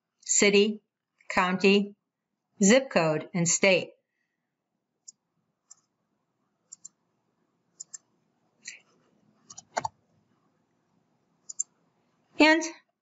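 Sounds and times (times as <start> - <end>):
mouse and keyboard clicks: 6.7 - 7.0, 7.8 - 8.1, 9.4 - 10.0, 11.4 - 11.7.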